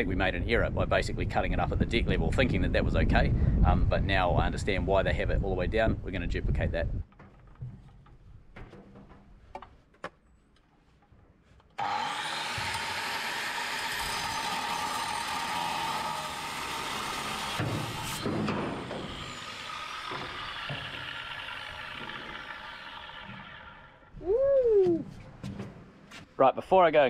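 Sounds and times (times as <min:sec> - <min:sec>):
grinder disc grinding on deck: 0:11.8 - 0:24.0
angle grinder whining: 0:11.8 - 0:24.2.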